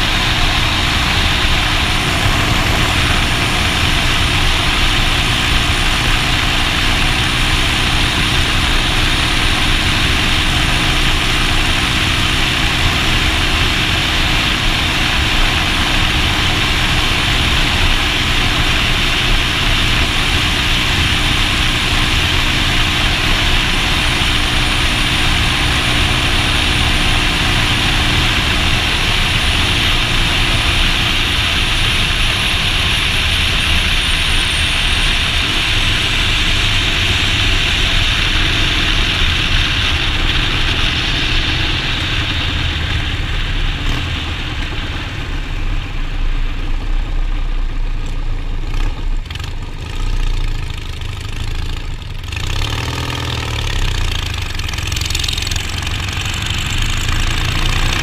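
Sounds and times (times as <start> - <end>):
motorcycle engine cruising: 0.0 - 58.0.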